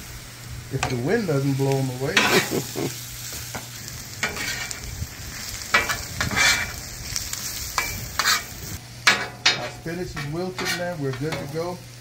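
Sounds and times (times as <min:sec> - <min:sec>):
vegetables sizzling on griddle: 0:00.0 - 0:12.0
metal spatula scraping: 0:02.1 - 0:02.7, 0:04.2 - 0:04.9, 0:05.5 - 0:06.9, 0:07.8 - 0:11.7.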